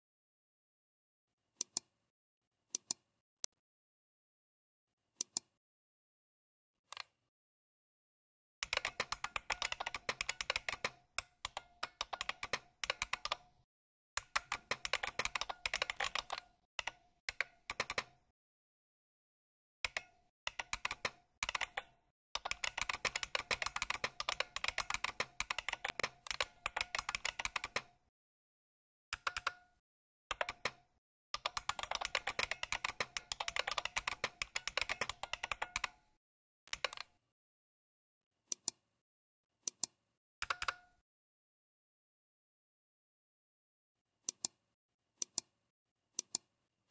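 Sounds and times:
keyboard key clicks: 29.2 - 29.7, 39.7 - 41.0.

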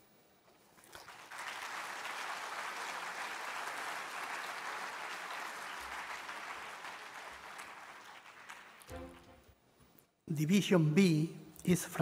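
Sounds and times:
audience applauding: 0.9 - 9.5.

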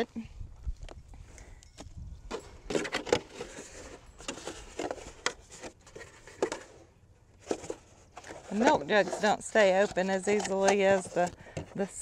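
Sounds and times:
plastic jug crinkling: 2.4 - 12.0
trowel scraping soil: 7.4 - 12.0.

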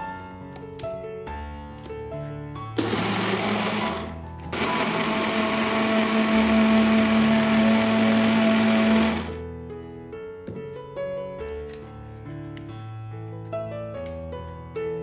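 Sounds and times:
blender running: 2.8 - 9.4.

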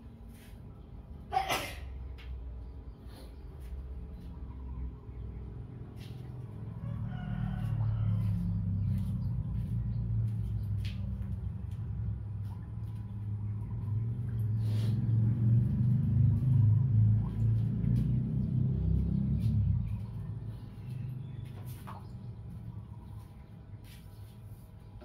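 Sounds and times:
rooster crowing: 6.7 - 8.7.

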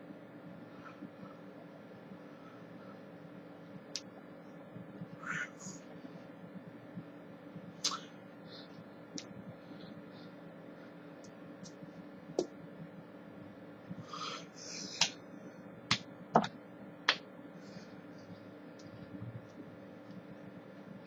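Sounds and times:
faint steady hum: 0.0 - 21.0
hands clapping and slapping: 15.0 - 15.2, 15.9 - 17.2.

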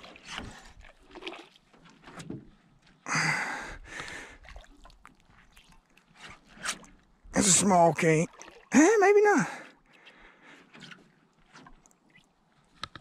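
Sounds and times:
water splashing against boat: 0.0 - 13.0
water dripping: 7.5 - 8.8.

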